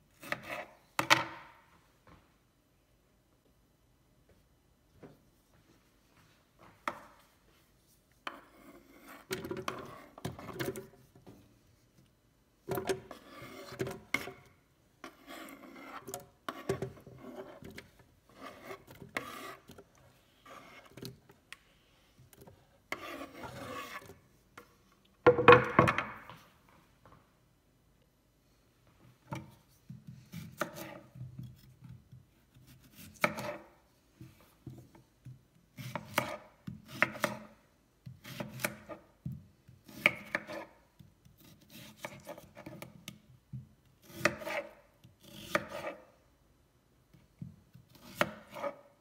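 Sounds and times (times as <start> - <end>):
food scraping on wooden board: 8.3 - 10.9, 13.0 - 14.4, 15.0 - 19.8, 20.4 - 21.2, 22.9 - 24.2, 30.3 - 31.7, 39.9 - 40.8, 44.0 - 46.1, 48.0 - 48.9.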